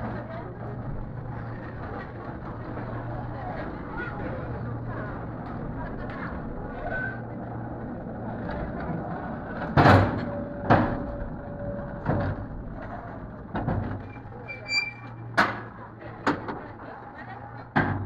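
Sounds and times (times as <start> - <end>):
crowd chatter: 0.0 - 18.0
cable car clunks and knocks: 8.4 - 18.0.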